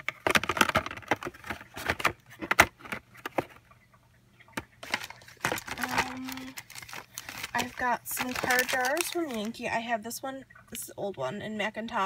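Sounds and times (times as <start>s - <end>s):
plastic packs clicking and knocking: 0.0s - 3.6s, 4.6s - 9.5s.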